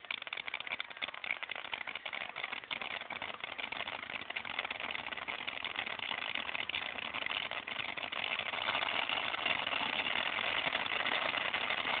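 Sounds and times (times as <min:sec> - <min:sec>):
firework hissing and crackling: 0:00.0 - 0:12.0.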